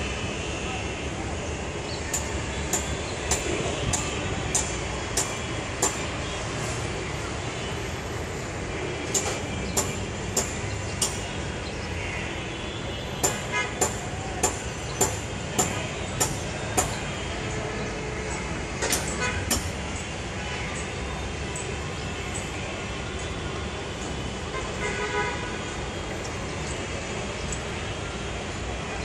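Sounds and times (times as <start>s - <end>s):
city traffic noise: 0.0s - 29.0s
car horns: 12.4s - 14.6s, 18.8s - 19.6s, 24.5s - 25.6s
sharp ringing knocks: 13.2s - 17.0s.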